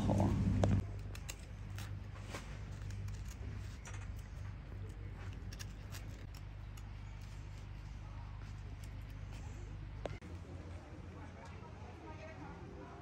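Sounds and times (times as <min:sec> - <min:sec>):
steady low hum: 0:00.0 - 0:13.0
knife scraping wood: 0:00.8 - 0:09.8.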